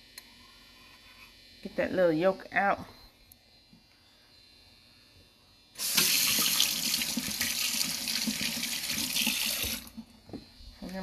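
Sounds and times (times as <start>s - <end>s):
faucet running into steel sink: 5.8s - 10.0s.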